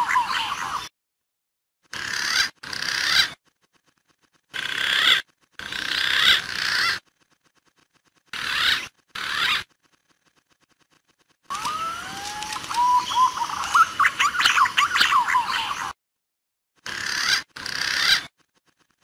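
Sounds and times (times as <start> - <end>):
whistled pigeon lure calls: 11.5 - 16.0.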